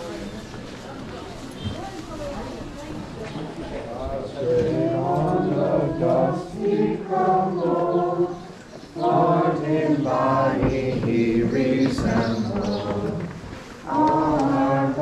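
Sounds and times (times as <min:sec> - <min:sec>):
group of voices singing: 0:04.3 - 0:15.0.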